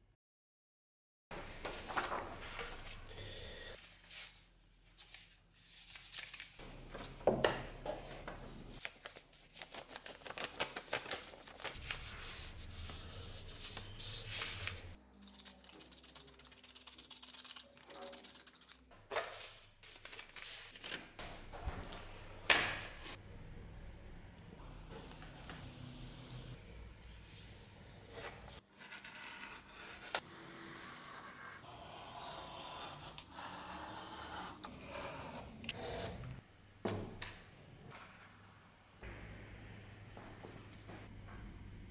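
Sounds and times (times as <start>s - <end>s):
paper rustling and rubbing: 3.8s - 6.6s, 8.8s - 18.8s.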